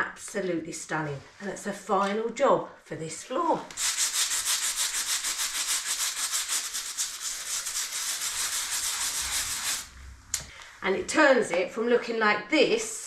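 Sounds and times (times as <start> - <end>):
hand brush scrubbing stone floor: 3.8 - 9.9.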